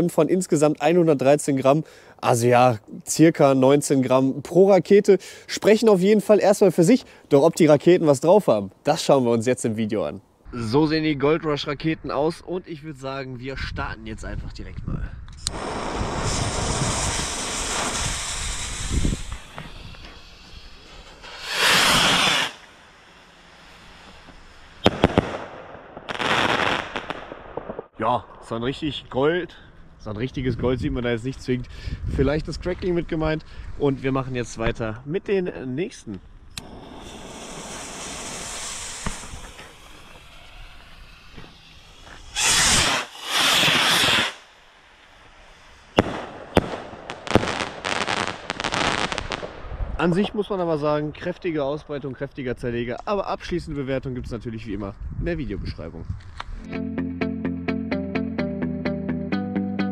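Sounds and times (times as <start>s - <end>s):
firework rocket whoosh: 15.4s - 27.3s, 36.6s - 50.0s
firework bang and cracks: 15.5s - 22.9s, 24.0s - 28.0s, 36.6s - 44.5s, 45.8s - 50.0s.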